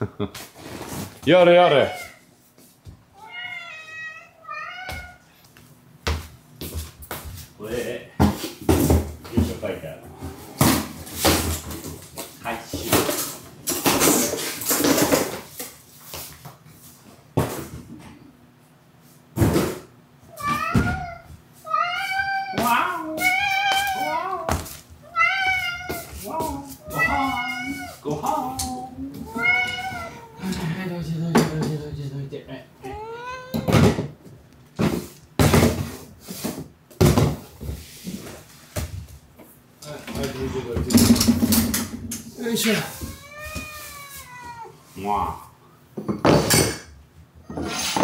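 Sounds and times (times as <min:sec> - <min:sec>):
sharp knocks and clatters: 0:40.1 - 0:42.4.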